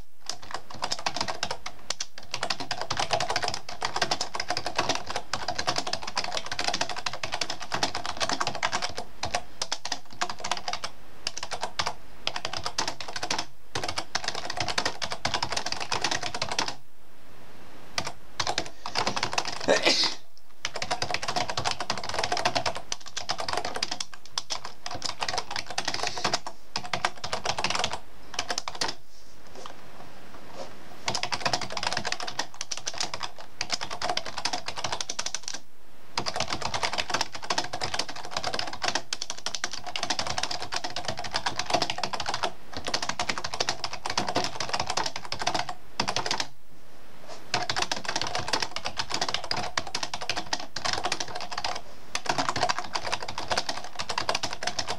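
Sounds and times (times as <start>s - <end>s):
fast typing on computer keyboard: 0.0s - 16.8s, 18.0s - 29.0s, 31.1s - 35.6s, 36.2s - 46.5s, 47.5s - 54.9s.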